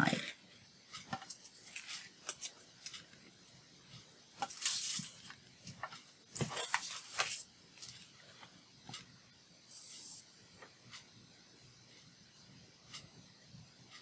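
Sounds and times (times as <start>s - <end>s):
paper sheets rustling and sliding: 4.4s - 5.4s, 6.4s - 8.1s.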